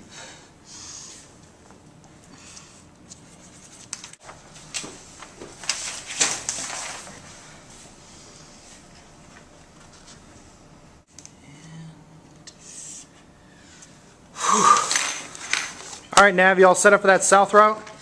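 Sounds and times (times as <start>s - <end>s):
paper charts rustling: 3.0s - 10.3s.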